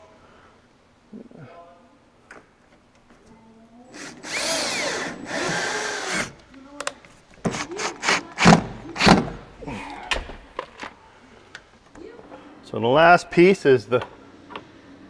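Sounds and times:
cordless drill whining: 3.9s - 6.4s.

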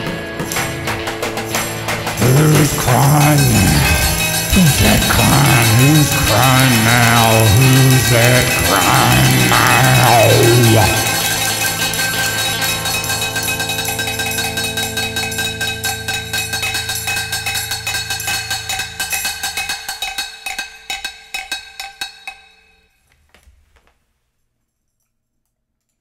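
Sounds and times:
electric guitar chord ringing: 0.0s - 20.0s.

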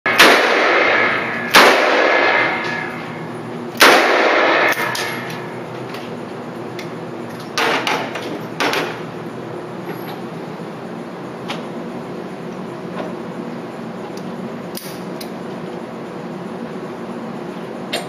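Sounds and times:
handgun shots echoing: 0.2s - 3.0s, 3.8s - 5.5s.

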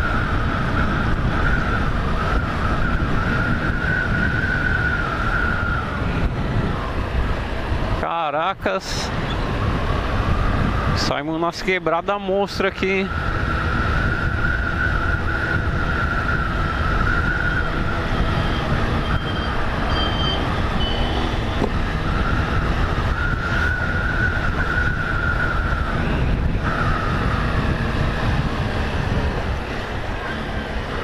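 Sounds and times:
road and wind noise: 0.0s - 31.0s.

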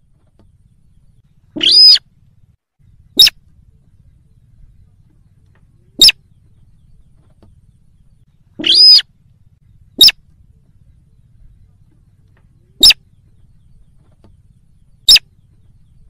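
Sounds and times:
rail bird calling: 0.0s - 16.0s.

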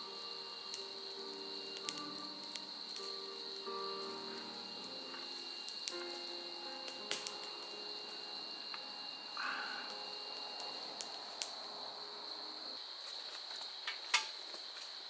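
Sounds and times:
crickets trilling: 0.0s - 15.0s.

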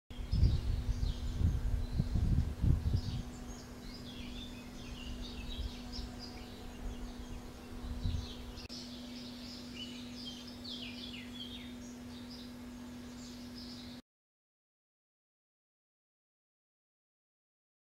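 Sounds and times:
low rumbling: 0.1s - 13.2s
small birds chirping: 0.1s - 14.0s
faint low hum: 0.2s - 14.0s.

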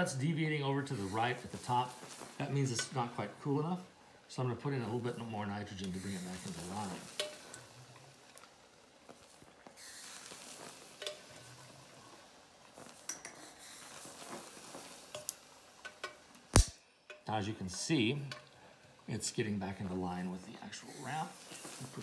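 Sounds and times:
faint liquid hiss: 0.0s - 22.0s.

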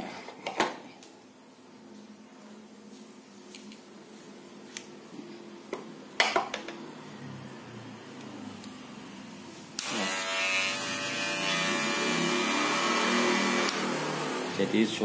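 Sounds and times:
electric hair clipper buzzing: 9.8s - 14.6s.

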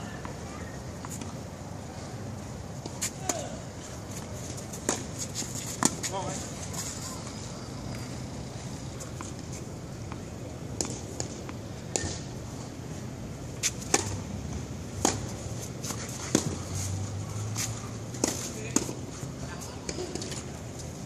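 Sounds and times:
rackets hitting tennis ball: 2.8s - 7.0s, 9.1s - 12.3s, 13.6s - 14.2s, 14.9s - 19.2s
tennis ball bouncing: 4.8s - 6.1s, 10.0s - 12.3s, 13.6s - 16.6s, 18.2s - 19.0s.

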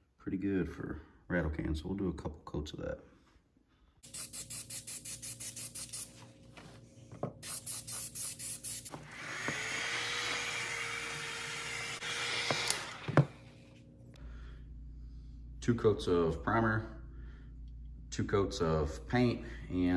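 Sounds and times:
spray paint can hissing: 4.0s - 6.2s, 7.4s - 8.9s.

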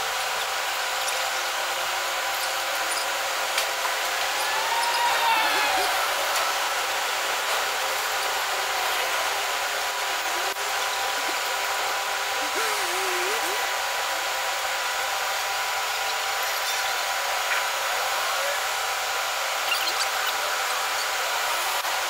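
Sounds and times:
city street hiss: 0.0s - 22.0s
faint hum: 4.1s - 14.0s.

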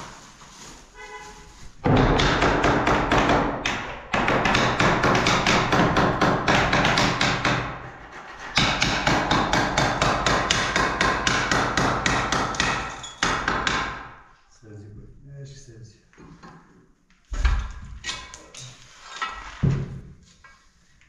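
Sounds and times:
hammering on concrete wall: 1.8s - 7.9s, 8.5s - 14.2s.

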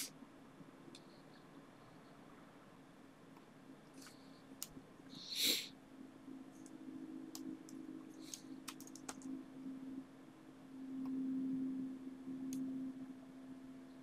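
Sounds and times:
low steady hum: 0.0s - 14.0s
computer mouse clicks: 3.4s - 4.8s, 6.6s - 9.4s
loud sniff: 5.2s - 5.7s
keystrokes: 6.6s - 9.3s.

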